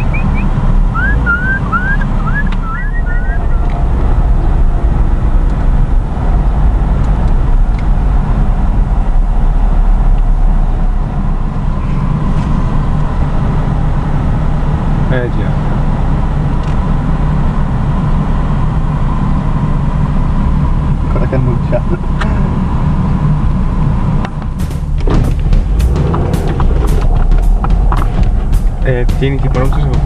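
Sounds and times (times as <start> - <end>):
quick high chirps: 0.0 - 3.7
car engine and road rumble: 0.0 - 30.0.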